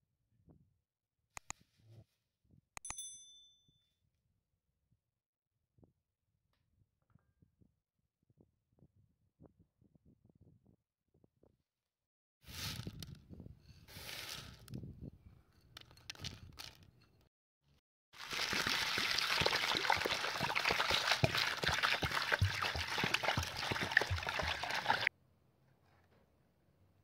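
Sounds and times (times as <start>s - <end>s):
water splashing onto dried peas: 18.2s - 25.1s.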